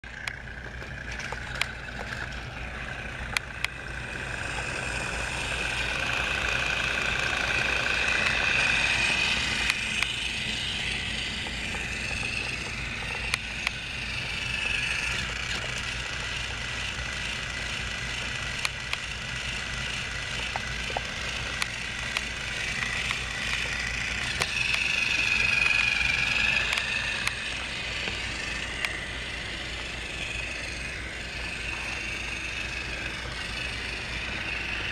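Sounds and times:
toy train engine whining: 0.0s - 34.9s
sharp clicks: 8.0s - 16.4s, 18.2s - 19.1s, 20.1s - 29.3s.

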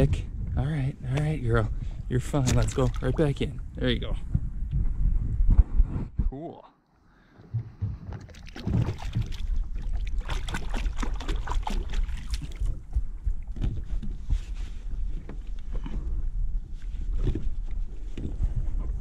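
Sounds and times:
wind rumble on microphone: 0.0s - 6.5s, 7.5s - 19.0s
hands splashing in water: 2.4s - 3.2s, 8.2s - 12.9s.

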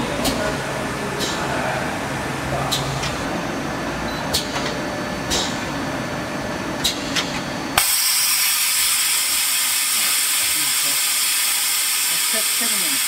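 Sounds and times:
lathe running: 7.8s - 13.0s
loud steady hiss: 7.8s - 13.0s.

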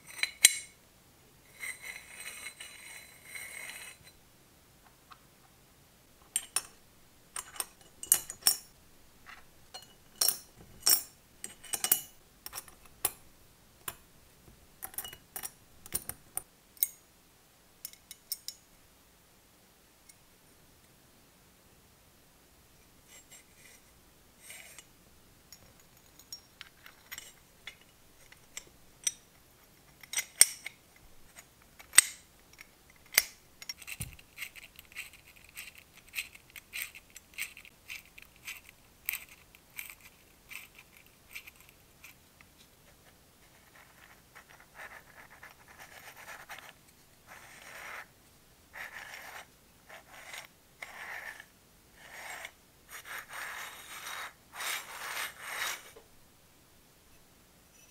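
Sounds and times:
small metal parts clinking: 31.8s - 41.8s
metal scraping strokes: 52.1s - 56.0s.

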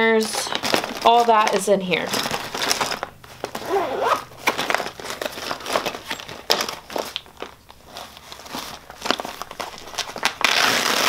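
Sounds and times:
plastic pouch crinkling: 0.1s - 11.0s.

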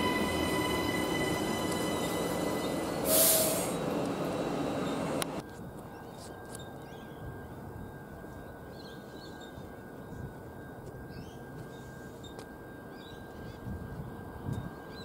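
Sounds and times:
electric train passing: 0.0s - 5.4s
brief loud hiss: 3.0s - 3.8s.

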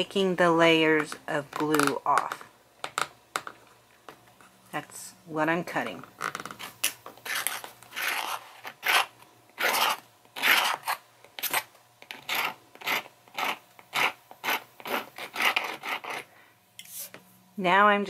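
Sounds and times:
knife blade scraping glue: 7.2s - 17.1s.

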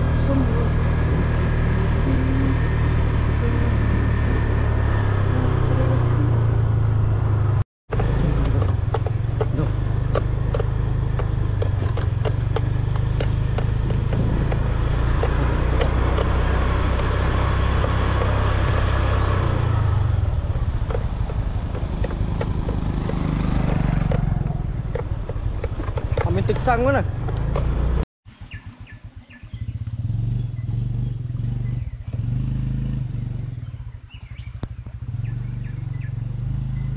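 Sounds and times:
small motorcycle engine running: 0.0s - 36.9s
knocks and rattles: 7.9s - 19.6s, 20.6s - 28.0s.

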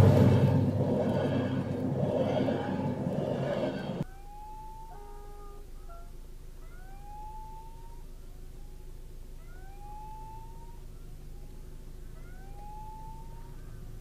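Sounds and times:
engine idling hum: 0.0s - 14.0s
level crossing warning tone: 9.5s - 13.7s.

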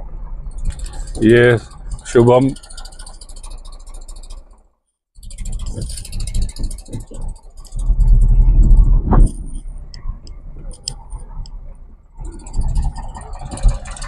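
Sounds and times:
tractor engine passing: 0.0s - 14.0s
sharp clicks: 5.2s - 11.6s.

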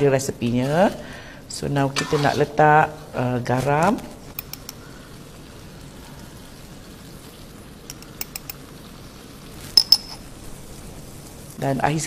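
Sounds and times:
curry bubbling in a pot: 3.8s - 11.8s
metal spoon clicking against pot: 4.4s - 4.8s, 7.9s - 8.6s.

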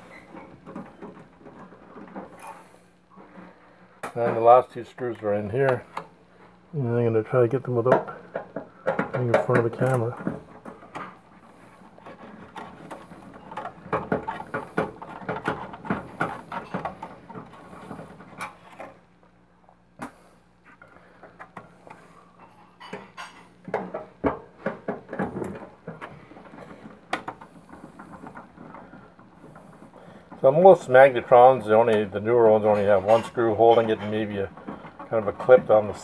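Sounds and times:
small metallic rattles: 7.0s - 19.4s, 21.0s - 36.0s.

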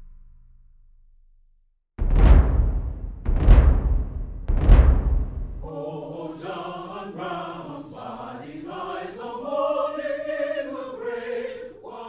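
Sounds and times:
voices singing long notes: 5.7s - 12.0s.

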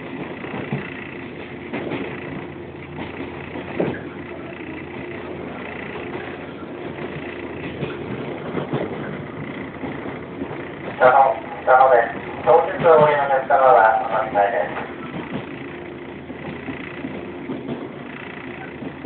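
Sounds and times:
traction motors and gears humming: 0.0s - 19.0s
train wheel-on-rail noise: 0.0s - 19.0s
wheels knocking on track: 0.0s - 19.0s.

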